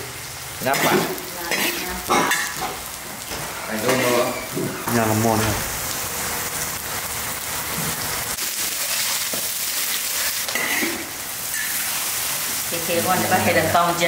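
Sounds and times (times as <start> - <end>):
food frying in a wok: 0.0 - 14.0.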